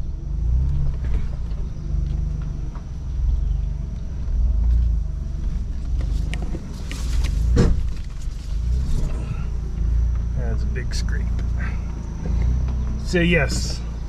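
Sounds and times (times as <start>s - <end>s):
vehicle drivetrain and tyres rumbling: 0.0s - 14.0s
underbody scraping ground: 4.3s - 10.5s.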